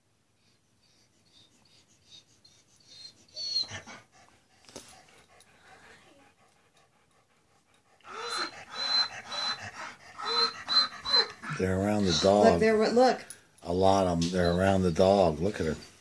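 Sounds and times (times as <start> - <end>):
dog panting: 0.4 - 16.0
collar tags jingling: 3.4 - 16.0.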